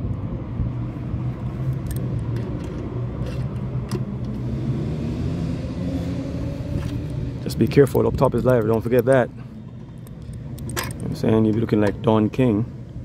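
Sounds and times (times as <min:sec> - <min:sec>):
low rumble and hum: 0:00.0 - 0:13.0
metallic tool clicks: 0:07.9 - 0:12.0.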